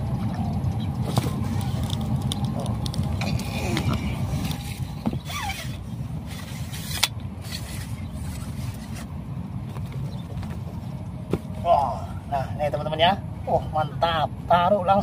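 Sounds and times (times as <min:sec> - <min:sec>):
wind buffeting microphone: 0:00.0 - 0:11.6.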